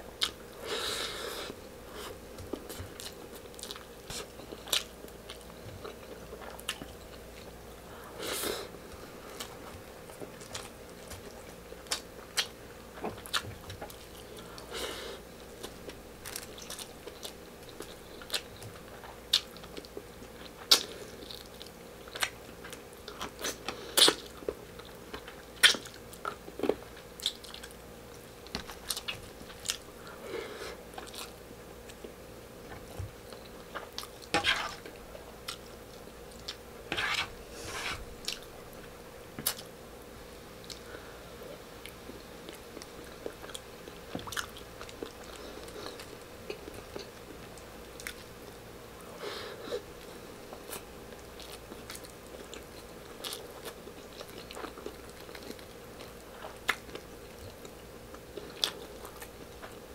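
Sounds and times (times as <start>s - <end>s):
person chewing: 0.2s - 7.5s, 41.8s - 48.3s, 50.5s - 59.8s.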